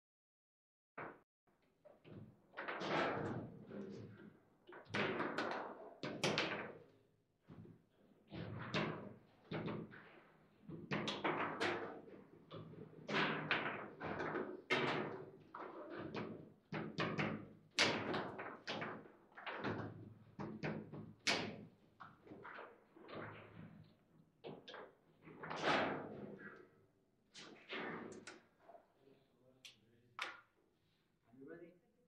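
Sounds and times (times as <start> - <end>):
table football knocks and clacks: 4.7 - 6.8, 10.7 - 23.8.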